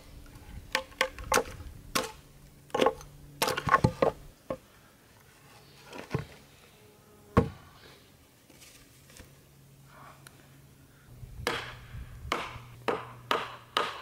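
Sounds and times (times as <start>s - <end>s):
hatchet chopping log: 11.4s - 14.0s.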